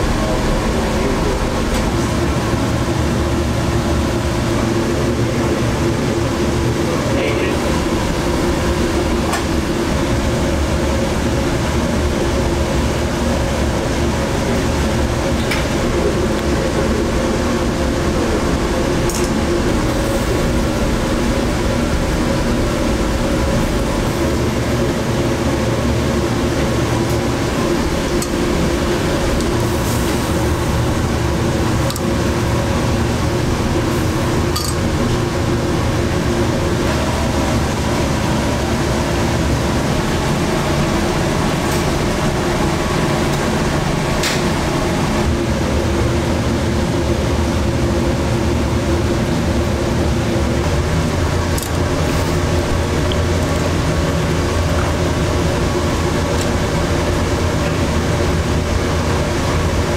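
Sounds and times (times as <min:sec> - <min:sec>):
kitchen machinery rumbling: 0:12.4 - 0:45.4.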